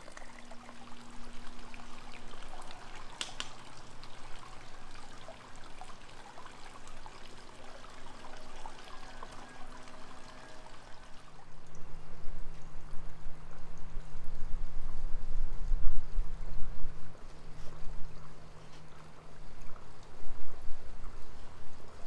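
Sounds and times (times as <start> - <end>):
water splashes and drips: 0.0 - 14.4
water trickling and pouring: 0.0 - 15.0.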